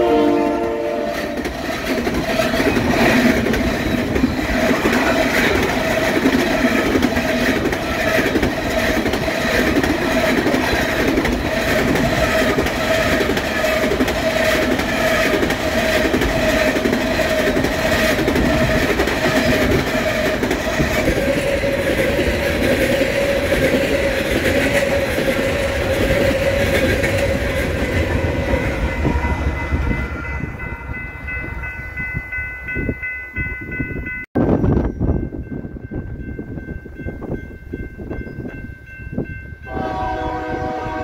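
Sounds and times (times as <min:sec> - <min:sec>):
distant locomotive horn chord: 0:00.0 - 0:01.4, 0:39.6 - 0:41.0
train cars rumbling and clattering: 0:00.4 - 0:41.0.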